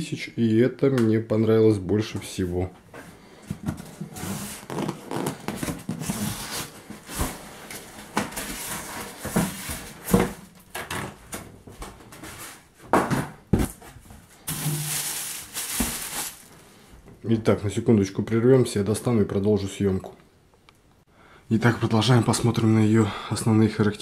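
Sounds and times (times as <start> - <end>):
foam and cardboard rubbing: 4.0 - 7.7.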